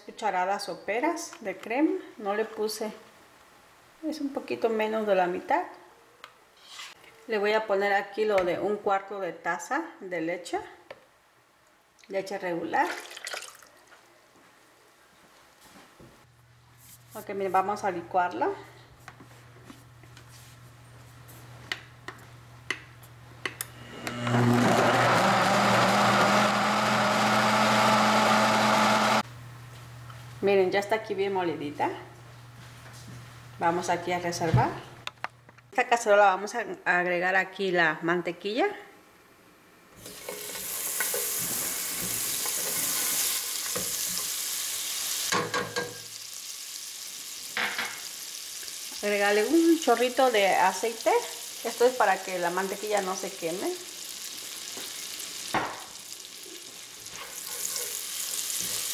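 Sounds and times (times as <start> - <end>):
blender motor running: 23.7 - 29.2
butter sizzling in a pan: 40.0 - 58.9.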